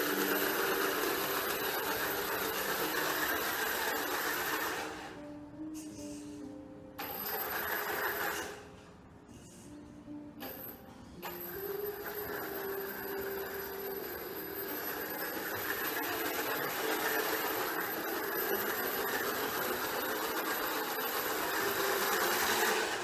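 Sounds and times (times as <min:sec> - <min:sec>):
small electric motor whirring through gears: 0:00.0 - 0:05.2, 0:07.0 - 0:08.6, 0:11.4 - 0:23.0.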